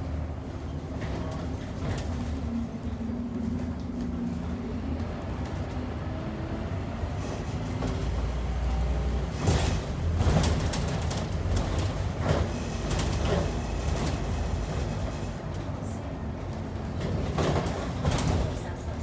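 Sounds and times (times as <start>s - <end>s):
bus diesel engine rumbling: 0.0s - 19.0s
clatters and knocks in cabin: 9.4s - 15.2s, 16.8s - 18.8s.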